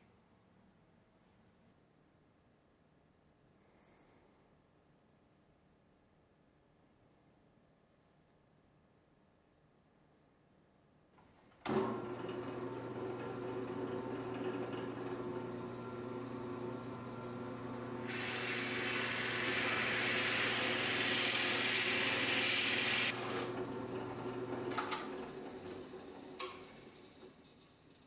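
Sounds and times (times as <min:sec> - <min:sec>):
drill press motor humming: 0:11.6 - 0:27.9
drill bit boring into wood: 0:11.7 - 0:26.6.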